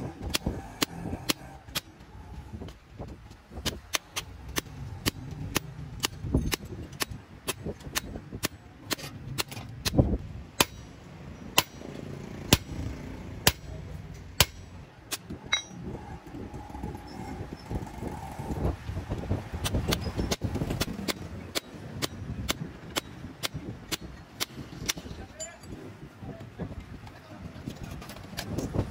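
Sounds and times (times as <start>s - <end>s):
hammer striking steel: 10.6s - 13.8s, 14.4s - 14.8s, 15.5s - 15.8s.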